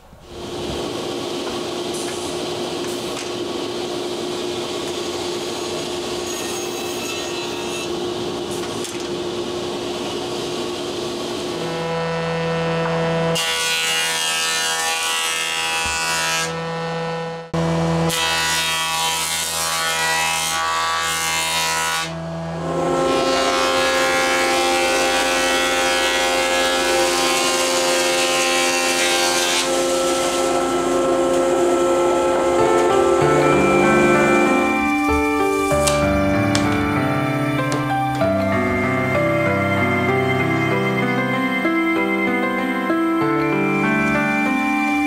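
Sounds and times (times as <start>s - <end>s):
saw cutting boards: 0.3s - 45.0s.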